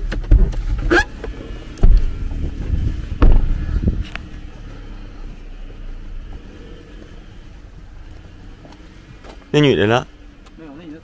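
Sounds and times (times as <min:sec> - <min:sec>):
car door shutting: 0:00.0 - 0:04.3
heavy thumps and knocks: 0:00.1 - 0:04.2.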